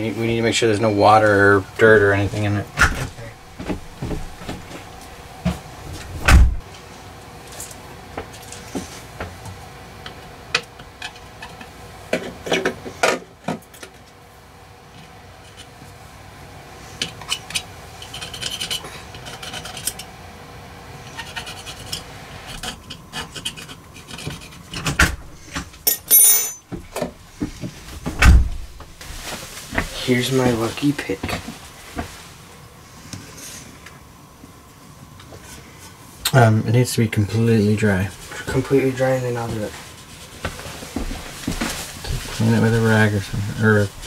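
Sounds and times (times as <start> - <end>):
loud thump: 6.2 - 6.6.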